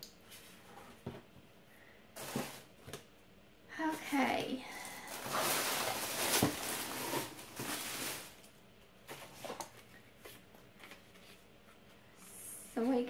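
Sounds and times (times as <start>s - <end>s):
packaging rustling and crinkling: 2.2s - 2.7s, 4.7s - 11.5s.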